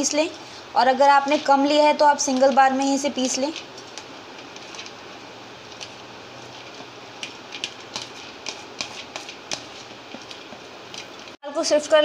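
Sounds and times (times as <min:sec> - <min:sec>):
steady low hiss: 0:00.0 - 0:12.0.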